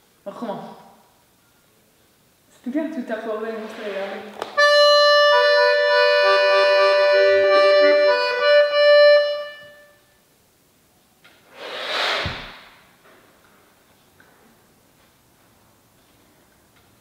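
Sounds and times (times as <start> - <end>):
button accordion chords: 4.6 - 9.8
short breathy rush of noise: 11.5 - 13.0.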